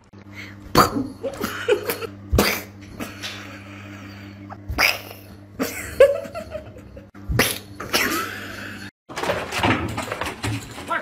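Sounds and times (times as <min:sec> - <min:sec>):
steady low hum: 0:00.0 - 0:08.9
person sneezing: 0:02.4 - 0:03.2.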